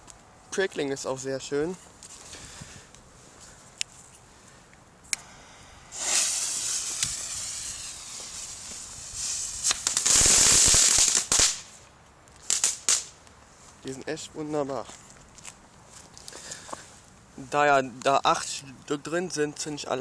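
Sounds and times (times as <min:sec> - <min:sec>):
firework crackling and popping: 0:05.2 - 0:11.8, 0:12.4 - 0:13.2
firework hissing: 0:05.2 - 0:11.8, 0:12.4 - 0:13.2.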